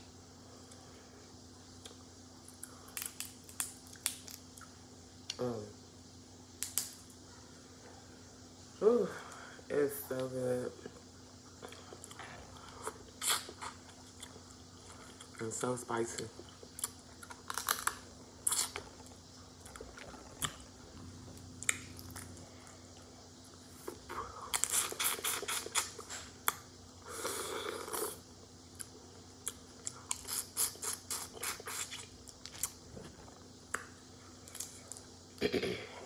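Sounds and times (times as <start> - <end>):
chewing and crunching: 10.8 - 35.1
wet mouth sound: 24.5 - 26.0.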